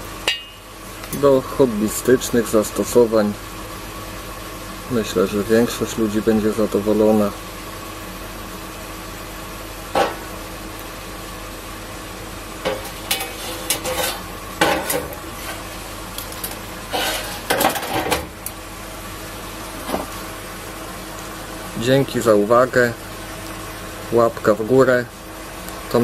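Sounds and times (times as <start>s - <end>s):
metal tube clinking and scraping: 12.7s - 15.1s.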